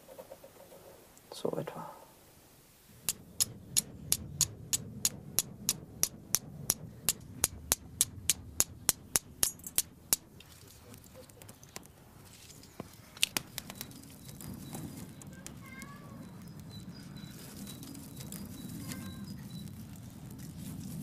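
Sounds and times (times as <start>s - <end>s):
steel striker clicking on flint: 3.0s - 10.3s.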